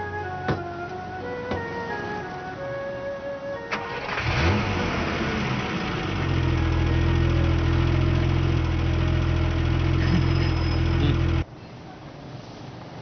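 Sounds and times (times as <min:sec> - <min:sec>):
car engine starting and idling: 0:03.5 - 0:11.4.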